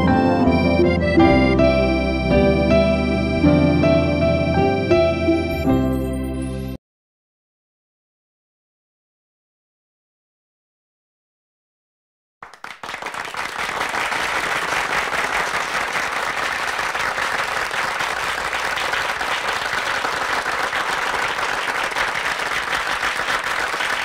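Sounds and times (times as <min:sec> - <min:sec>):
audience applause: 0:12.4 - 0:24.0.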